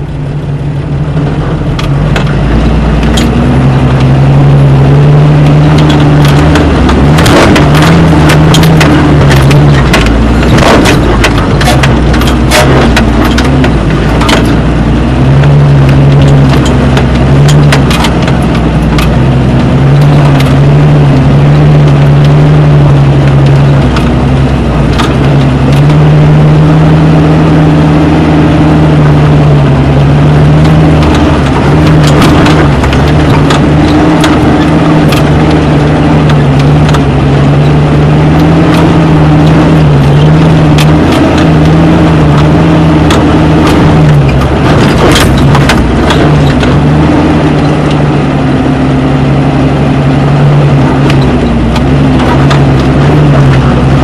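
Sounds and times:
off-road vehicle engine running: 0.0s - 54.0s
clicks and knocks from vehicle: 1.2s - 4.2s, 5.5s - 14.8s, 15.8s - 26.0s, 30.5s - 48.2s, 50.7s - 54.0s.

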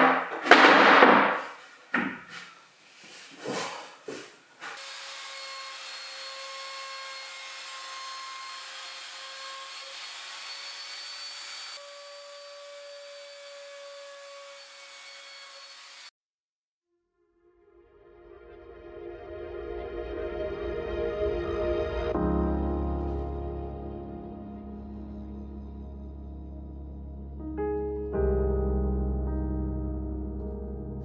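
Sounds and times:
knocks: 0.0s - 2.4s.

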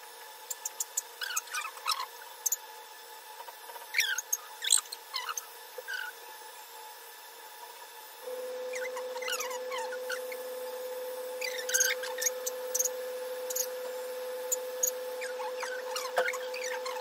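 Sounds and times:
electric hair clippers humming: 8.0s - 17.0s
high squeaky chirps: 8.6s - 10.5s, 11.3s - 17.0s.

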